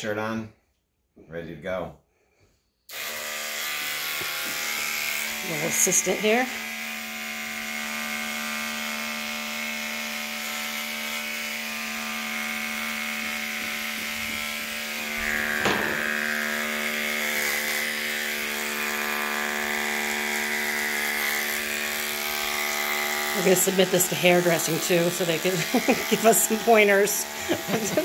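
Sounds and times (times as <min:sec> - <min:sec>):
electric hair clippers buzzing: 0:02.9 - 0:28.0
brief knock: 0:15.6 - 0:16.0.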